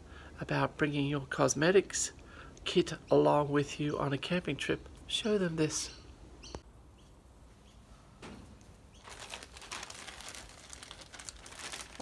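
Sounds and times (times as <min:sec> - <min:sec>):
plastic bag crinkling: 0:09.0 - 0:12.0.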